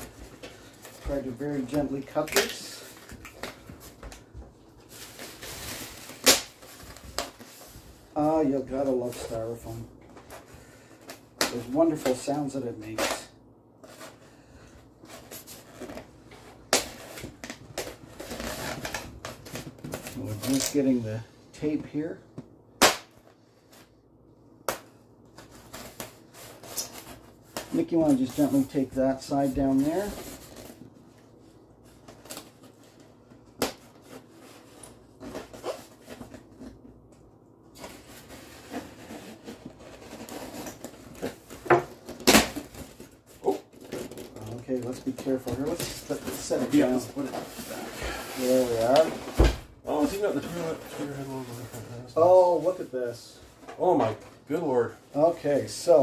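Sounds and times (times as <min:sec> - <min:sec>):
foam scraping and rubbing: 0:44.3 - 0:49.2.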